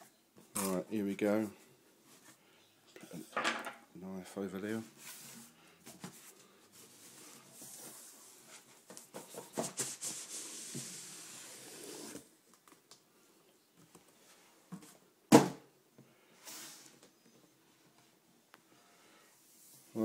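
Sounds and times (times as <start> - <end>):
cardboard scraping and tearing: 9.7 - 12.3.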